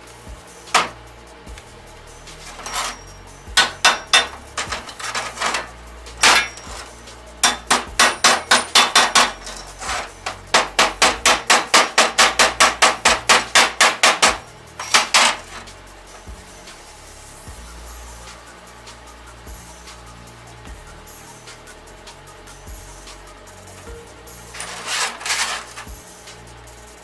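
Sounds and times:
hammer striking steel: 0.7 - 1.0, 2.4 - 15.7, 23.9 - 26.0.

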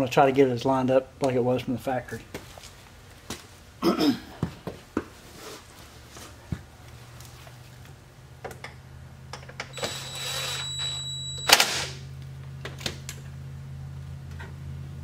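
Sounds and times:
cordless driver whining: 9.7 - 11.6.

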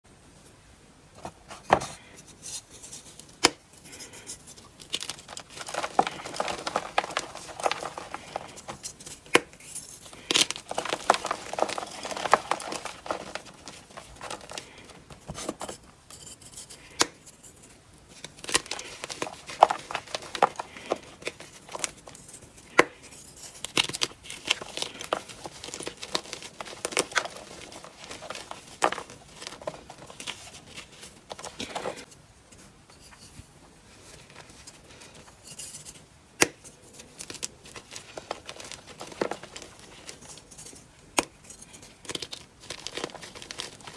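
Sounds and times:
dry crunching and crumbling: 2.9 - 32.2, 36.4 - 43.9
powder blocks snapping: 4.5 - 15.8, 18.1 - 32.1, 36.4 - 43.9.

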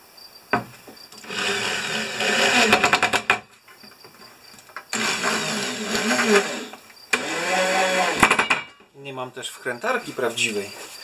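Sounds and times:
electric drill motor whining: 1.2 - 2.9, 4.9 - 8.4
drill clutch clicks: 7.1 - 7.5.

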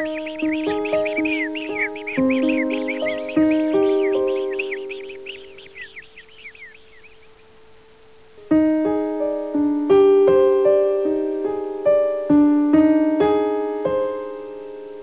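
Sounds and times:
slow piano melody: 0.0 - 7.3, 8.4 - 15.0
birds chirping: 0.0 - 8.5.

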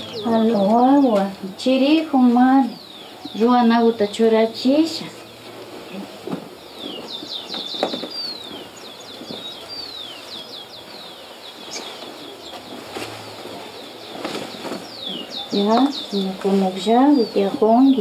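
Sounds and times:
small birds chirping: 0.0 - 18.0
cloth rustling: 11.7 - 17.2.

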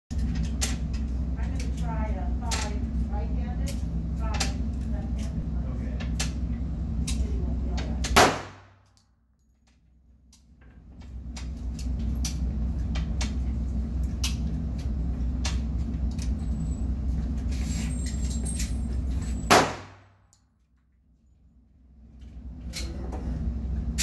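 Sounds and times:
low hum: 0.1 - 24.0
pistol shot with echo: 8.2 - 8.8, 19.5 - 20.1.

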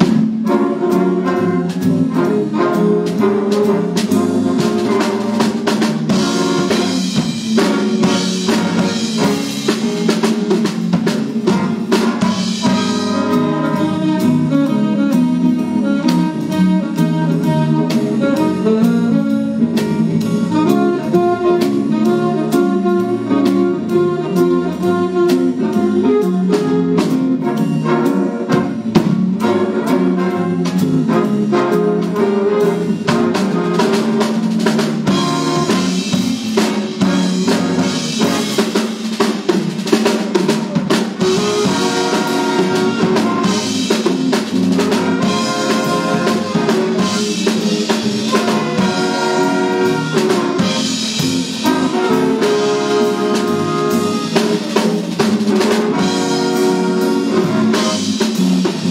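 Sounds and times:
big band playing swing: 0.0 - 58.9
drum kit: 0.0 - 58.9
trumpets and trombones: 0.0 - 58.9.

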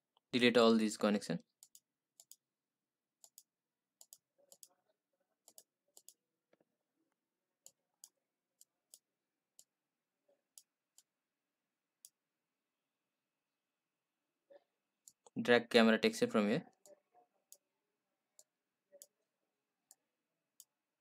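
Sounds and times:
computer mouse clicking: 1.5 - 2.4, 3.2 - 4.8, 5.4 - 6.6.

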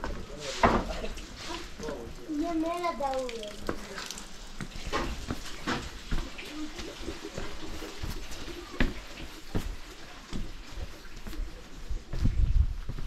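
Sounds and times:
footsteps on stone: 4.6 - 13.0.

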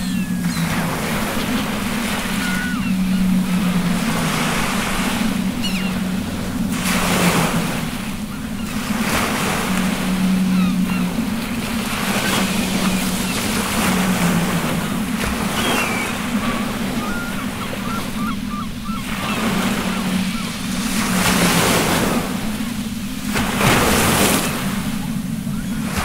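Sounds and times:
high squeaky calls: 0.0 - 3.4, 5.6 - 6.0
ocean waves: 0.0 - 26.0
steady low hum: 0.0 - 26.0
wind: 0.0 - 26.0.

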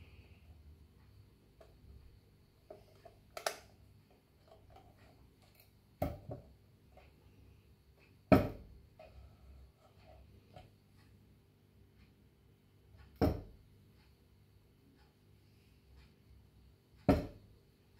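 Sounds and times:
plastic lamp knocking on wooden table: 17.1 - 17.4.

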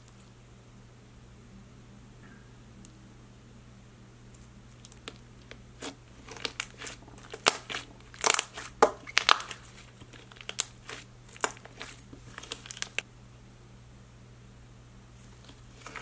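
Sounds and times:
hands squishing slime: 4.8 - 13.0, 15.3 - 16.0.

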